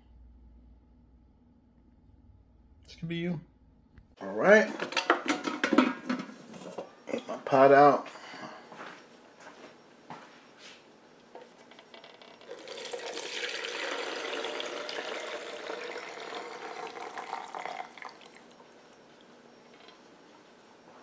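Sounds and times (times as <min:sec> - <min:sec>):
liquid splashing into a jug: 0:12.5 - 0:18.5.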